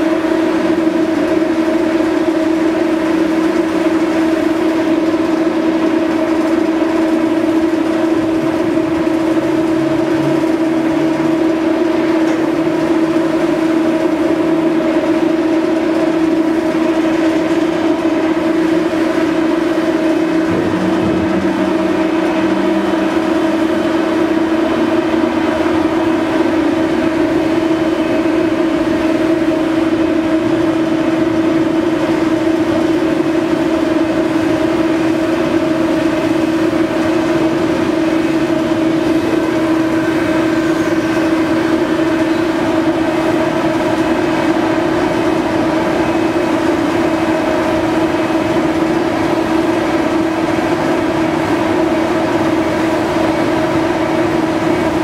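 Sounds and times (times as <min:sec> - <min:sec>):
ship machinery hum: 0:00.0 - 0:55.0
low drone: 0:05.2 - 0:51.8.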